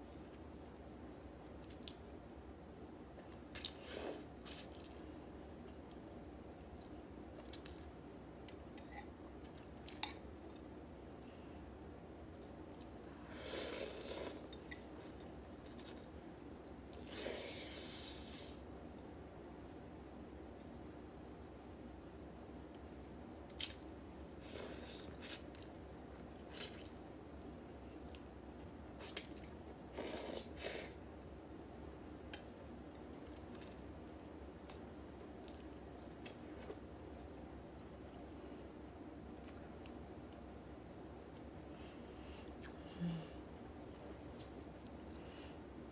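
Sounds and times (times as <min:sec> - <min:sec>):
quiet chewing with mouth clicks: 0:01.5 - 0:02.1, 0:32.3 - 0:42.8.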